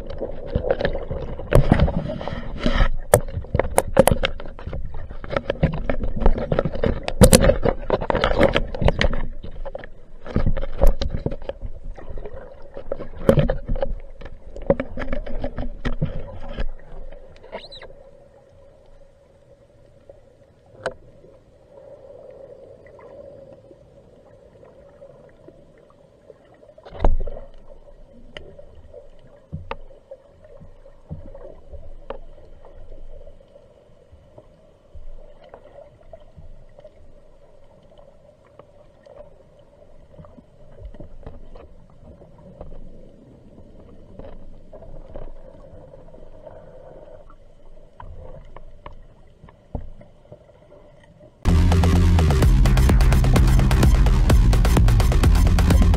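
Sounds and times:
diver clicks and knocks: 0:00.0 - 0:11.8, 0:12.8 - 0:17.9
water sloshing and gurgling: 0:00.0 - 0:51.5
steady hum: 0:51.5 - 0:55.9.

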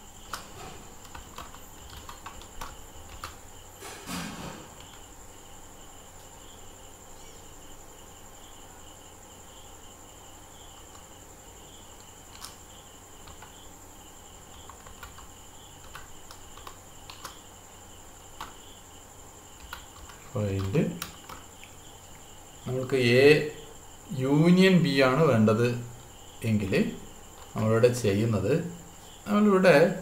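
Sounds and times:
computer keyboard keystrokes: 0:00.3 - 0:03.4, 0:10.8 - 0:11.1, 0:12.0 - 0:12.6, 0:13.2 - 0:13.6, 0:14.5 - 0:17.4, 0:18.4 - 0:18.6, 0:19.6 - 0:21.4.

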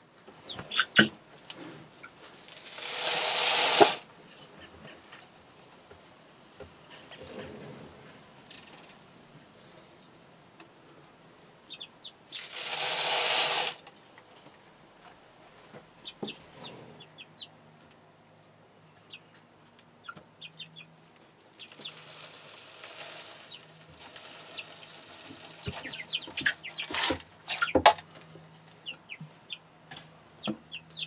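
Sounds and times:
dry chicken feed pouring: 0:02.4 - 0:04.0, 0:12.3 - 0:13.8, 0:21.5 - 0:27.2
hens clucking: 0:21.6 - 0:28.0.

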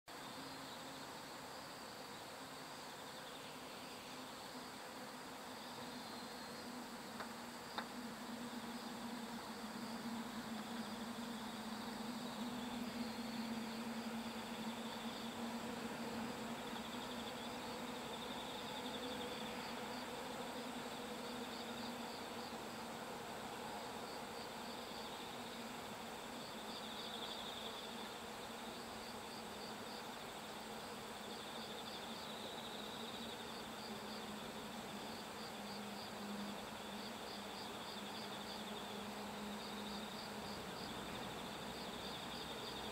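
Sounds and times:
low steady hum: 0:00.1 - 0:31.6
insects chirping: 0:00.1 - 0:42.9.

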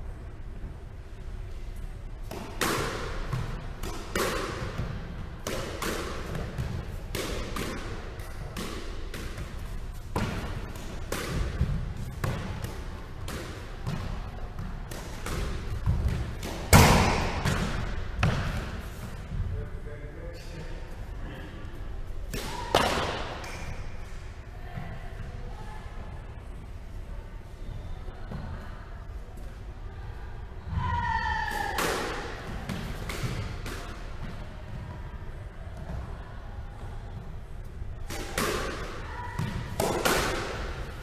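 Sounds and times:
squash ball hits echoing: 0:02.2 - 0:19.5, 0:22.2 - 0:24.0, 0:30.7 - 0:36.3, 0:37.9 - 0:41.0.

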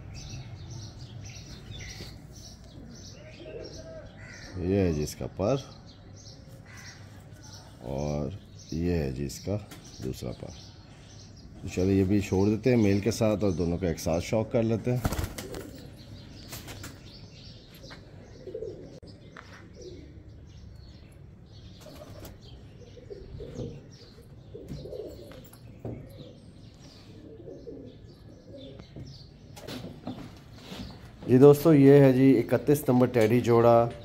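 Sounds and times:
pigeons cooing: 0:00.1 - 0:04.5, 0:15.0 - 0:21.0, 0:21.6 - 0:31.2
wing flutters: 0:15.0 - 0:15.9.

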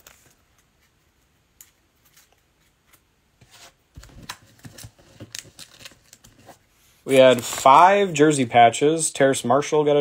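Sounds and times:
trading cards clicking and rustling: 0:04.0 - 0:08.2.

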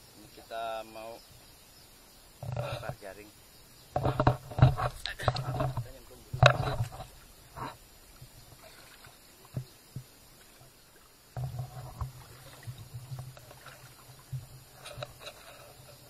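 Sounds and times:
short knocks: 0:03.9 - 0:07.8
water sloshing and thumping: 0:03.9 - 0:16.0.

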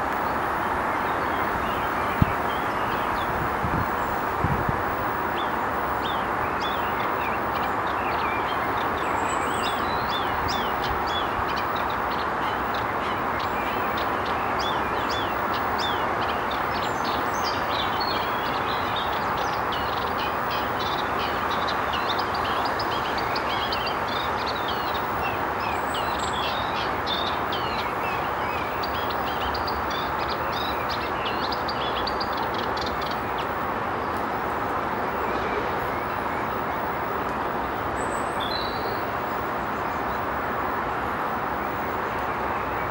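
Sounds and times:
steady rushing background noise: 0:00.0 - 0:42.9
small birds chirping: 0:05.2 - 0:34.2.

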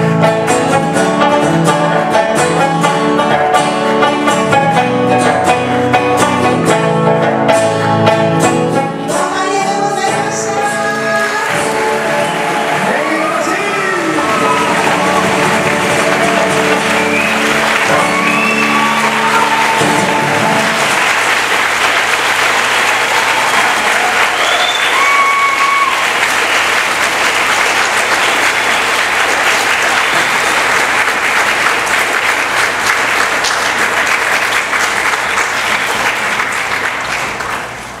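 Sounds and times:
acoustic guitar and sanshin: 0:00.0 - 0:13.4
audience applauding: 0:10.8 - 0:38.0
crowd whooping: 0:11.4 - 0:30.3.

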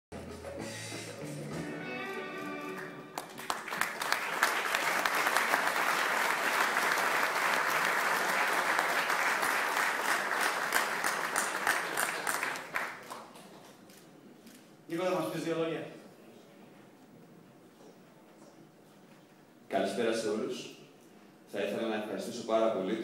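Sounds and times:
audience applauding: 0:02.1 - 0:13.6.

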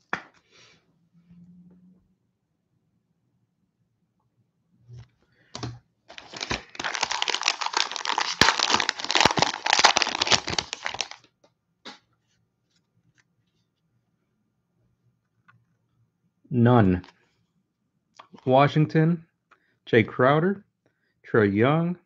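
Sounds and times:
plastic wrapper tearing and crinkling: 0:06.1 - 0:11.3.

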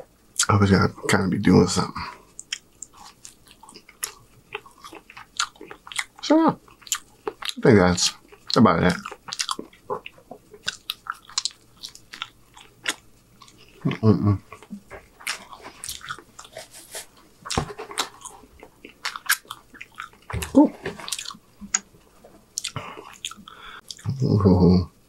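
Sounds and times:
chewing and biting food: 0:02.4 - 0:21.9, 0:22.6 - 0:24.0
low humming voice: 0:13.8 - 0:14.5, 0:24.0 - 0:24.9.

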